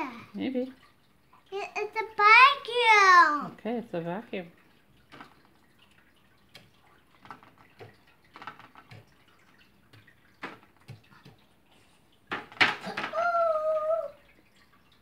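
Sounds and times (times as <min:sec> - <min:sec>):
brush tapping in foil tray: 0:06.5 - 0:09.2.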